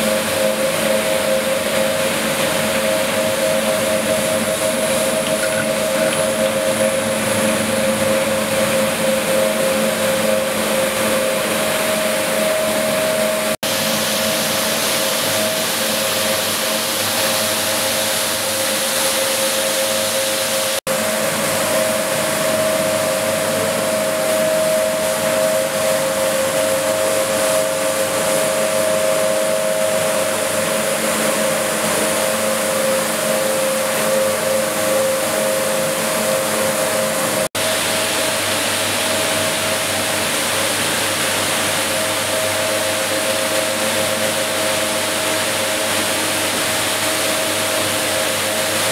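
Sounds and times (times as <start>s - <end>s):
electric motor hum: 3.6s - 9.9s.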